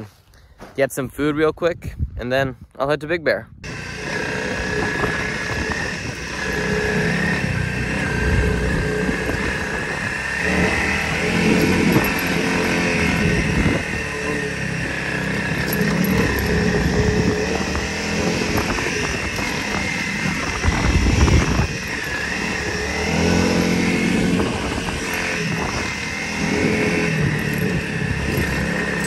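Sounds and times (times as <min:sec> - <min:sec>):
wind rumble on microphone: 0:01.0 - 0:29.0
motorcycle engine revving: 0:03.6 - 0:29.0.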